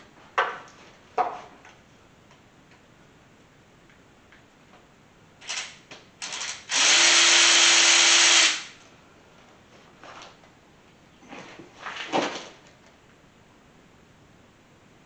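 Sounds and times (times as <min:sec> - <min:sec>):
power drill whirring: 0:05.4 - 0:08.8.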